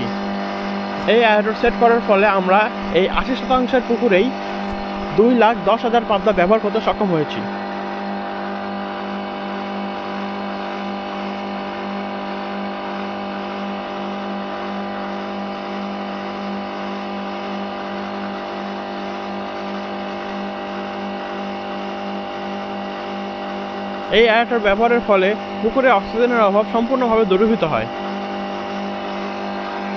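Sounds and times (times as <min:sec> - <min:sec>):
electric motor humming: 0:00.0 - 0:29.9.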